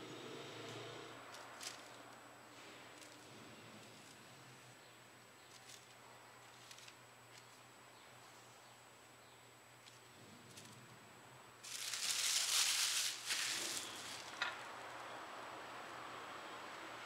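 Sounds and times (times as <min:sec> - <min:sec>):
paper napkin crumpling: 0:11.6 - 0:14.4.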